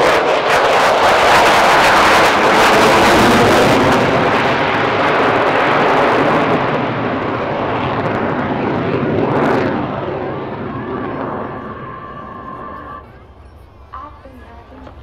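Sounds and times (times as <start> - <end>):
jet passing overhead: 0.0 - 15.0.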